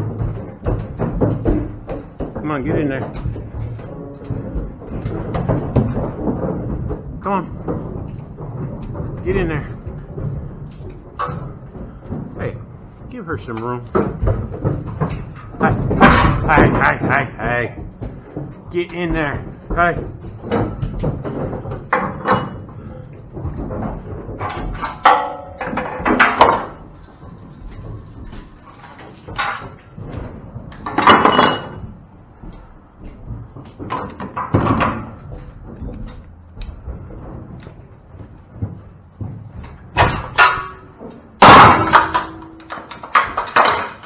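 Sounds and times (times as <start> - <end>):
metal trailer gates clanging: 18.6 - 23.3, 30.8 - 32.0, 39.9 - 44.0.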